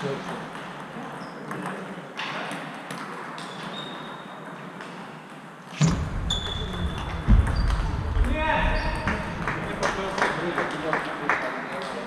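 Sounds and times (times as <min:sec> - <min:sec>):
loud thump: 0:05.8 - 0:09.4.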